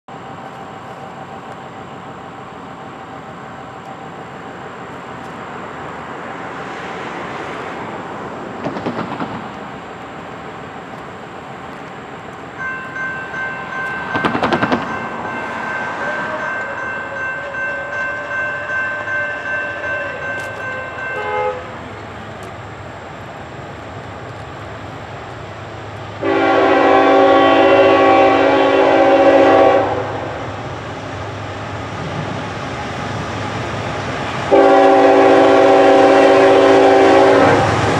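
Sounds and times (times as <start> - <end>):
train rumble: 0.1 - 37.9
locomotive air horn blasts: 17.4 - 21.8, 26.2 - 30.4, 34.5 - 37.6.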